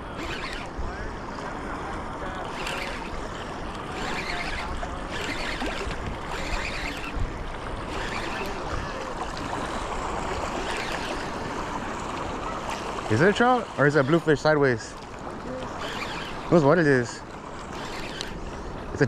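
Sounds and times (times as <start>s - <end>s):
wind buffeting microphone: 0.0s - 13.7s
sea waves: 0.0s - 19.0s
surf surging: 0.0s - 19.0s.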